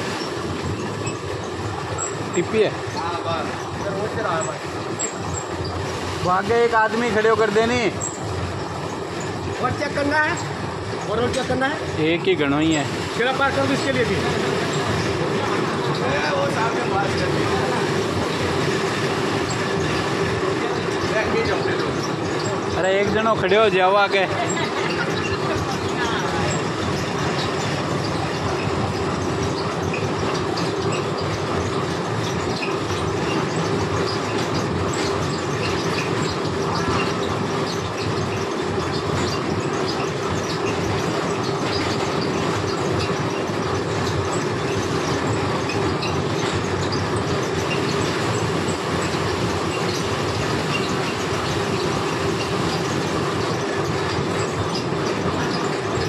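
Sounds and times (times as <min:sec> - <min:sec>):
machine hum and fast clattering: 0:00.0 - 0:56.0.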